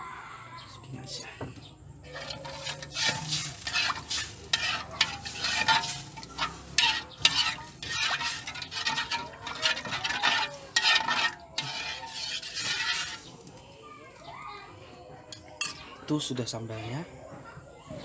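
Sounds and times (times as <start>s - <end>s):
spoon scraping a wok: 2.0s - 13.6s.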